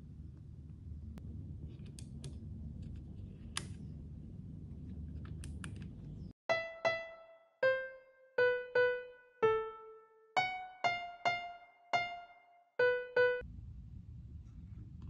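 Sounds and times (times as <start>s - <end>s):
low room hum: 0.0s - 15.0s
piano notes: 6.5s - 13.5s.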